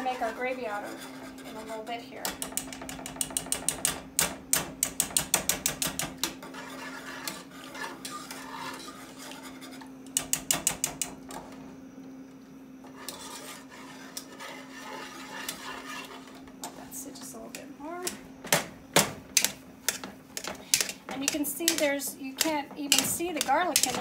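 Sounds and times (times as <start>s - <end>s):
whisk scraping pan: 0.0s - 3.9s, 5.0s - 10.4s, 12.8s - 17.2s, 19.8s - 24.0s.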